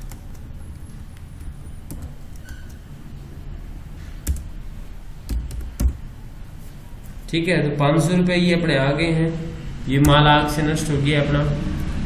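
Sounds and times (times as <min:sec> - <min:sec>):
computer keyboard keystrokes: 0:00.0 - 0:00.5, 0:04.2 - 0:04.5.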